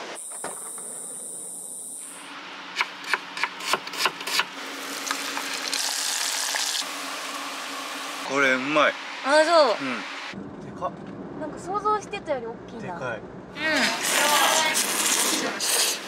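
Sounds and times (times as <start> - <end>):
fish deep-frying in oil: 4.8 - 8.2.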